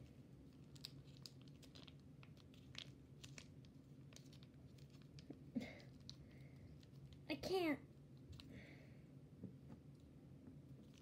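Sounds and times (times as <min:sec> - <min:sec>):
low room hum: 0:00.0 - 0:11.0
slime clicks and crackles: 0:00.5 - 0:07.3.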